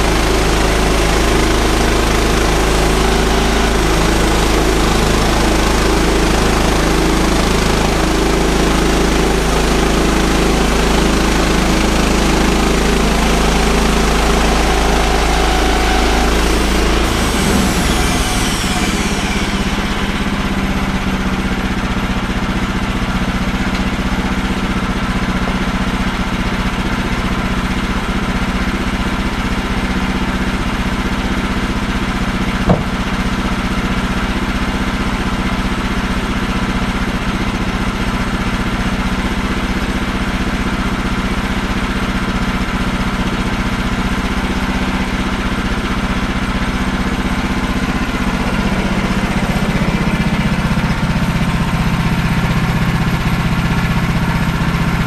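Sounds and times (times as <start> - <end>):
sawmill engine idling: 0.0 - 55.0
sharp knock: 32.7 - 33.1.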